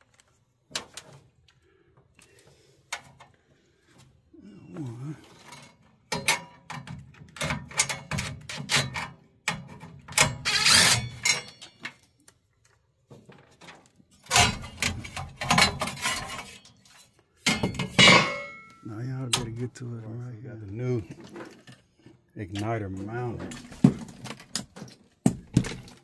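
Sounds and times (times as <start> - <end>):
metal clicks and clatter: 5.4 - 12.8.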